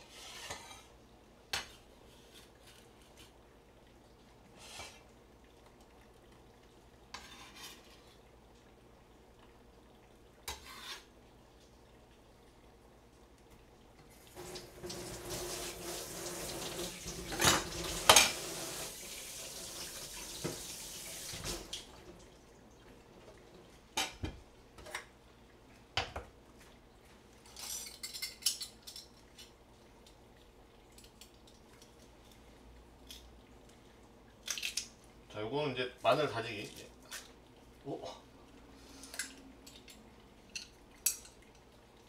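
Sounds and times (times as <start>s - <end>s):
tap running into sink: 14.4s - 21.9s
dishes and utensils clinking: 17.2s - 18.4s, 27.4s - 29.4s.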